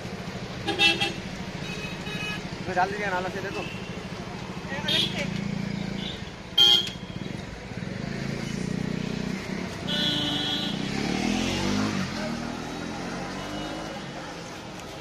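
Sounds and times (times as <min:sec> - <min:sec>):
cars and motorcycles passing: 0:00.0 - 0:15.0.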